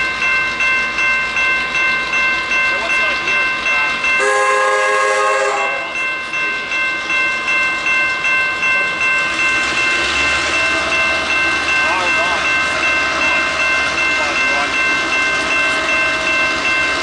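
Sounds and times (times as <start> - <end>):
level crossing bells ringing: 0.0 - 17.0
low locomotive engine rumble: 0.0 - 17.0
locomotive horn: 4.2 - 5.9.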